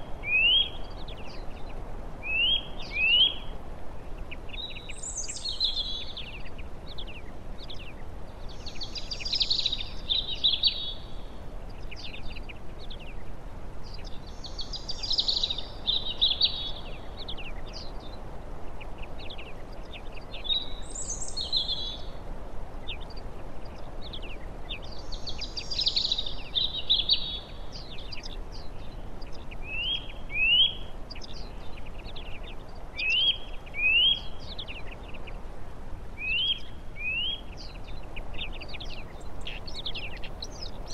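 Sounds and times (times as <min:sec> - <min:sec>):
outdoor background hiss: 0:00.0 - 0:40.9
songbirds singing: 0:00.0 - 0:40.9.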